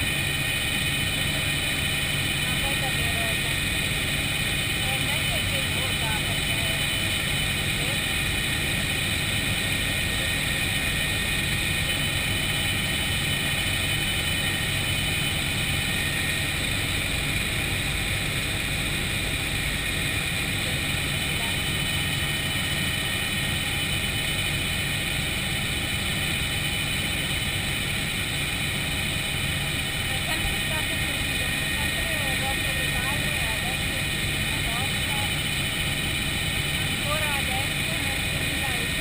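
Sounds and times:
helicopter engine and rotor drone: 0.0 - 39.0.

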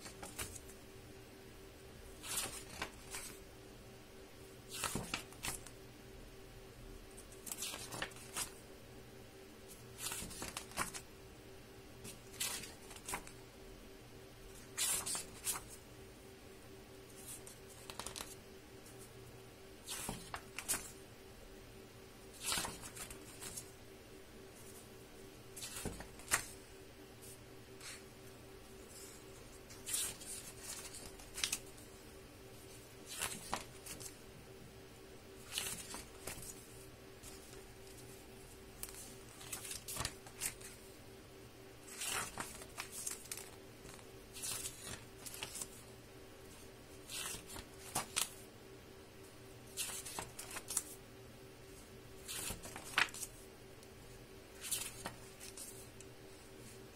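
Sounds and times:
book pages rustling: 0.0 - 0.8, 2.2 - 3.4, 4.6 - 5.8, 7.1 - 8.6, 9.7 - 11.0, 12.0 - 13.4, 14.6 - 15.8, 17.1 - 19.1, 19.8 - 21.0, 22.3 - 23.7, 24.6 - 26.6, 27.2 - 28.1, 28.7 - 32.0, 32.6 - 34.2, 35.4 - 40.8, 41.8 - 45.9, 46.5 - 48.4, 49.6 - 51.0, 51.8 - 53.4, 54.5 - 56.9
faint steady hum: 0.0 - 56.9.

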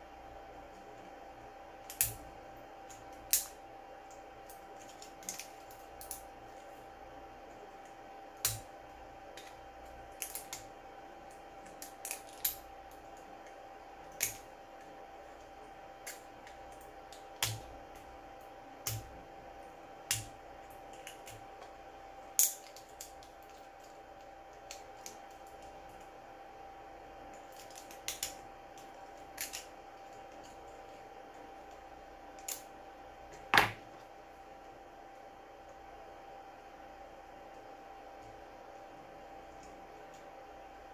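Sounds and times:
faint steady hum: 0.0 - 40.9.

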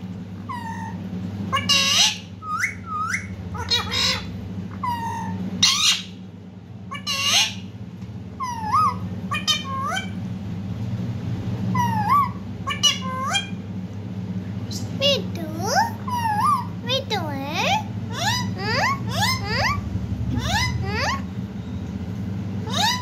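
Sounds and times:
parakeet squawks and chirps: 0.4 - 6.2, 6.8 - 7.7, 8.4 - 10.2, 11.7 - 13.6, 14.6 - 21.9, 22.6 - 23.0.

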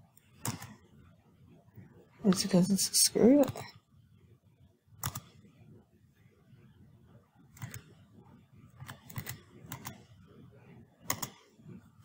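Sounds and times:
computer mouse clicking: 0.2 - 0.8, 3.4 - 3.8, 5.0 - 5.4, 7.5 - 8.0, 8.8 - 10.2, 11.0 - 11.5.

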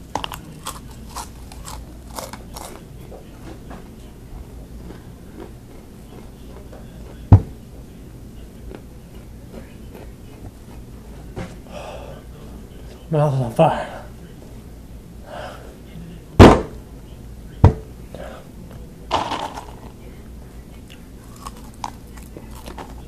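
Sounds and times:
crunching and chewing snacks: 0.0 - 3.0, 4.8 - 7.3, 8.7 - 10.8, 20.8 - 23.0.

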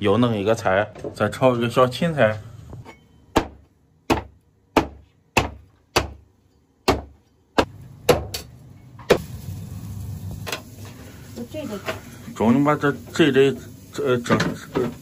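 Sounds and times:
cleaver chopping on wooden board: 3.4 - 6.2, 6.8 - 7.2.

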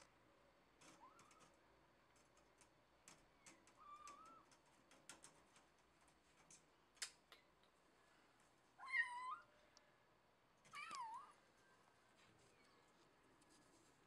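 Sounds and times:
claws clicking on mesh screen: 0.8 - 7.8.

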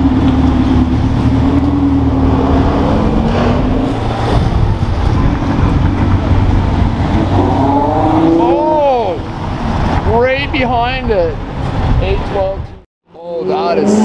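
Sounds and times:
car engine at low revs: 0.0 - 8.2.

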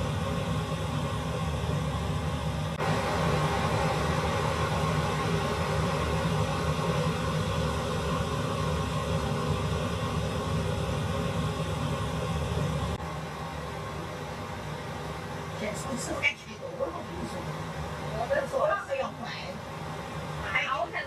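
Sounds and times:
gas burner rushing: 0.0 - 21.0.

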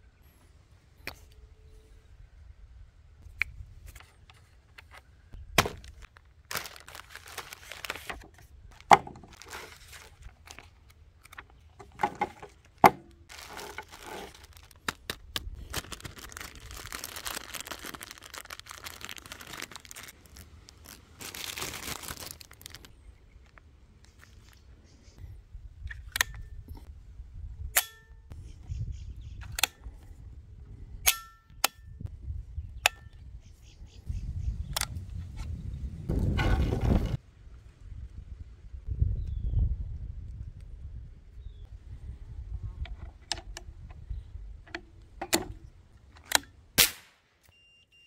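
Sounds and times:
plastic bag crinkling: 5.6 - 11.5, 12.4 - 23.6.

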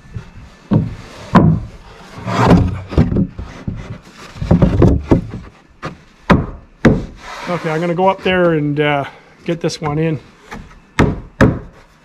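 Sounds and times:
wooden boards scraping: 0.0 - 9.0
wooden boards knocking: 0.7 - 1.7, 2.3 - 7.2, 10.6 - 11.8.

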